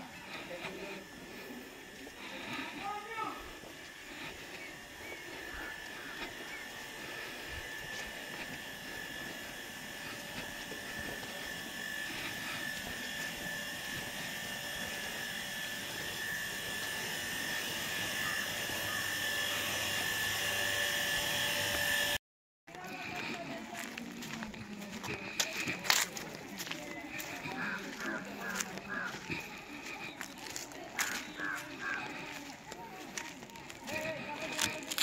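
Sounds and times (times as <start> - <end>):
mechanical drone with high whine: 0.0 - 22.2, 31.0 - 32.4.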